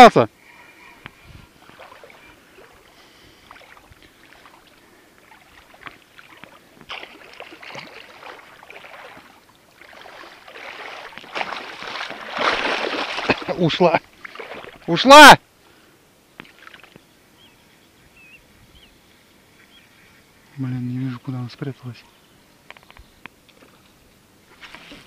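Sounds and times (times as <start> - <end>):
fish thrashing in water: 1.6 - 2.9, 3.5 - 14.9.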